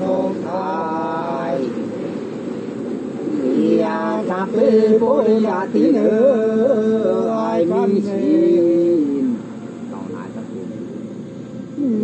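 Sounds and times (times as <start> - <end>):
women singing unaccompanied: 0.0 - 1.9, 3.4 - 9.3.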